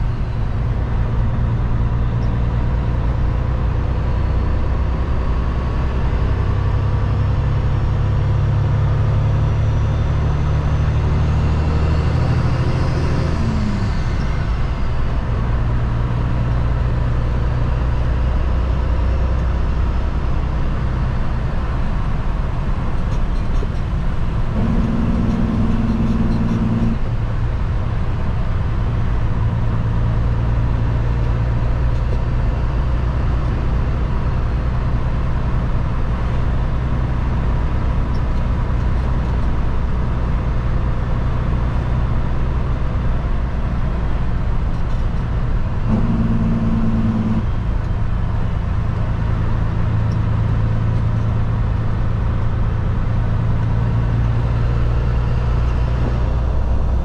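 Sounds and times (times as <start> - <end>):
road noise: 0.0 - 57.0
truck diesel engine running: 11.5 - 57.0
higher engine note: 23.8 - 28.7, 44.8 - 50.2.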